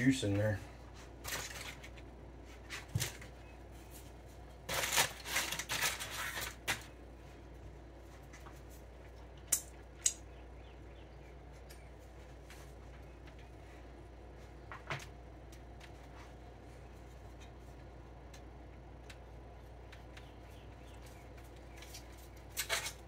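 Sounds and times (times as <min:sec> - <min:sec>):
aluminum foil crinkling: 0:01.2 - 0:07.0, 0:21.3 - 0:23.0.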